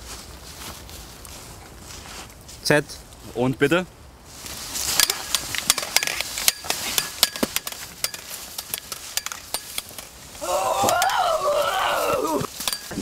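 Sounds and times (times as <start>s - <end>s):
steady rustling hiss: 0.0s - 13.0s
plastic sticks clacking together: 5.0s - 10.1s.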